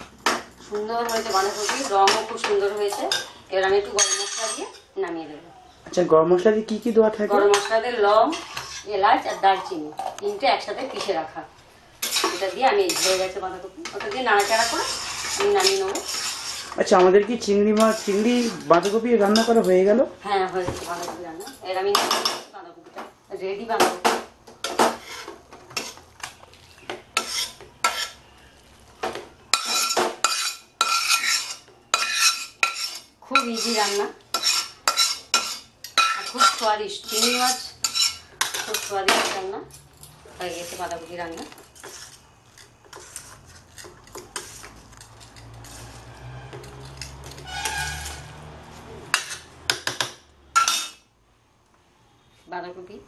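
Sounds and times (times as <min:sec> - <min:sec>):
spatula scraping metal bowl: 0:00.6 - 0:03.3, 0:07.3 - 0:11.3, 0:12.0 - 0:19.6, 0:24.6 - 0:26.4, 0:27.0 - 0:28.4, 0:29.5 - 0:39.1, 0:40.4 - 0:49.6, 0:50.6 - 0:51.0.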